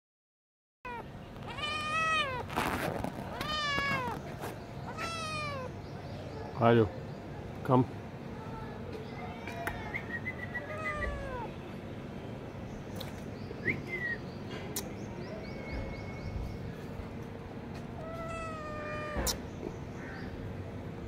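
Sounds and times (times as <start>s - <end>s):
kitten meowing: 0.9s - 5.7s, 10.6s - 11.5s, 18.0s - 19.4s.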